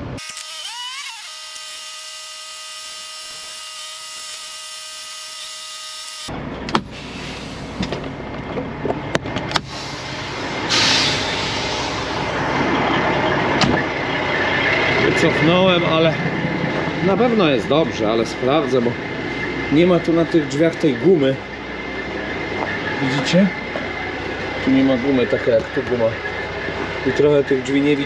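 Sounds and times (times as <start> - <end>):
high-pitched whine: 0.0 - 28.0
truck diesel engine running: 6.3 - 28.0
short loud air hiss: 6.9 - 7.8, 9.6 - 12.3.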